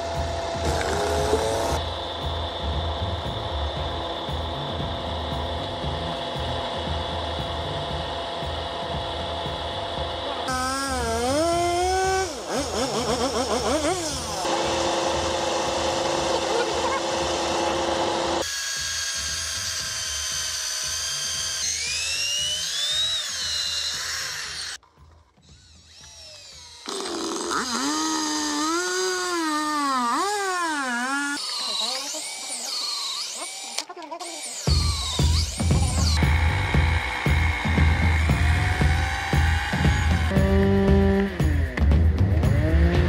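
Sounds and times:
cordless drill whining: 7.8 - 24.8, 25.4 - 40.4
drill boring into wood: 9.6 - 24.8, 25.4 - 40.4
chainsaw cutting log: 9.6 - 41.4.

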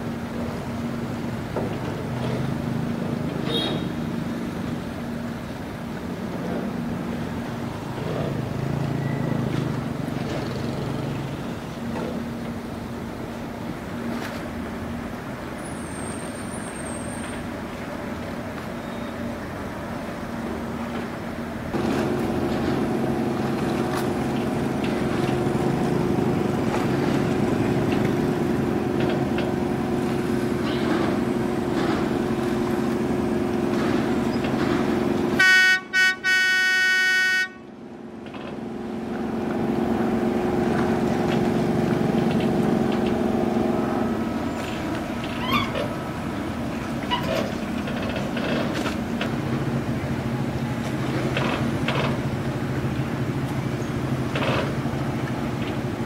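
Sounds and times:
boat diesel engine droning: 0.0 - 56.0.

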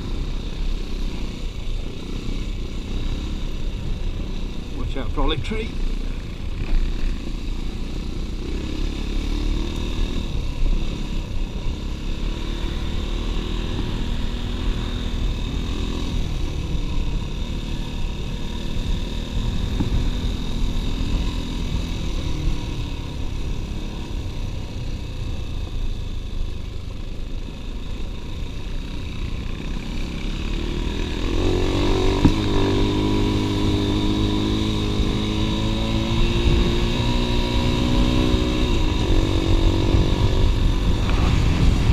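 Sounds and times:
dirt bike engine running: 0.0 - 41.9.

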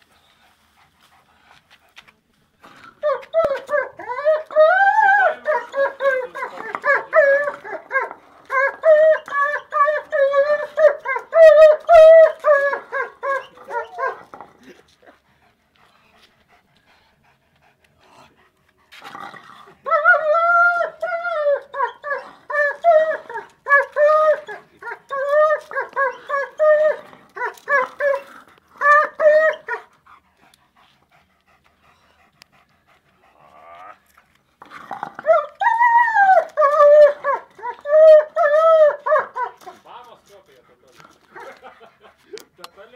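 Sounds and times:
dog whining: 3.0 - 14.3, 19.8 - 29.8.

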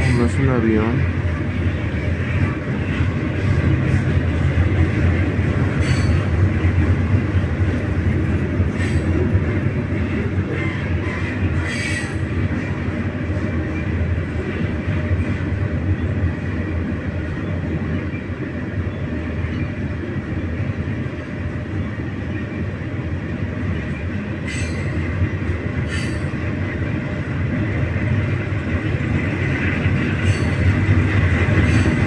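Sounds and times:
train wheels rumbling on rail: 0.0 - 32.0
metallic wheel squeals: 5.8 - 6.3, 30.2 - 30.7.

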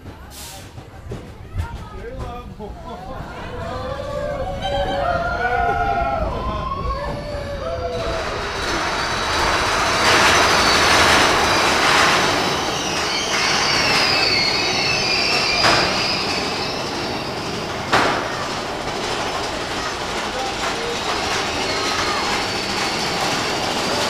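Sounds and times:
roller coaster cars rattling: 0.0 - 24.0
wheels squealing: 3.5 - 24.0
sharp knocks: 17.9 - 18.4.

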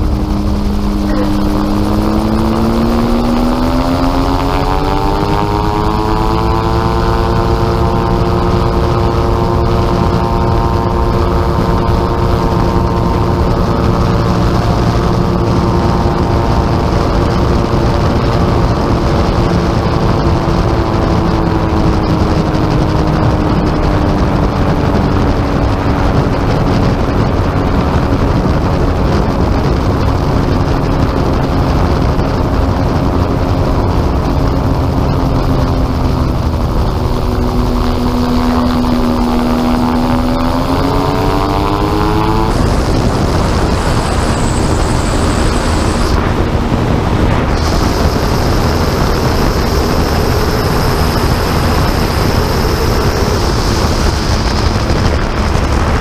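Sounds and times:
gyrocopter engine and propeller: 0.0 - 56.0
wind rushing: 0.0 - 56.0.

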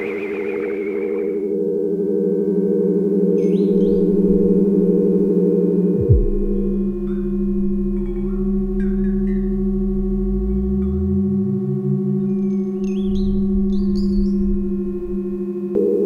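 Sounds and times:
warbling high chirps: 0.0 - 1.5, 6.0 - 15.6
deep gliding tone: 0.0 - 15.8
experimental electronic drone music: 0.0 - 16.0
fast low pulse: 0.0 - 16.0.

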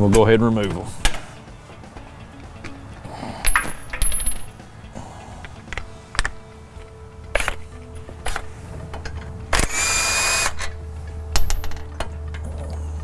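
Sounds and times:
metallic clicks of tool handling: 3.4 - 4.5, 5.4 - 7.6
cordless impact wrench running: 9.6 - 10.7.

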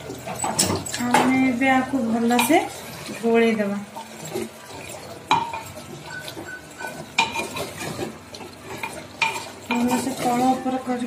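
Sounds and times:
spoon scraping clay pot: 3.9 - 11.0
spoon knocking against pot: 5.3 - 7.7.

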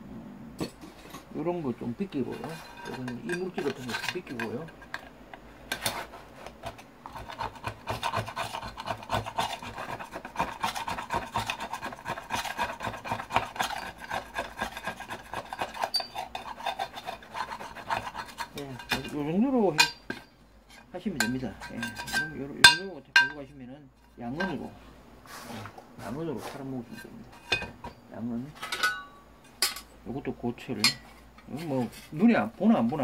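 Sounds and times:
scraping metal lid: 2.1 - 23.4, 26.8 - 28.0.

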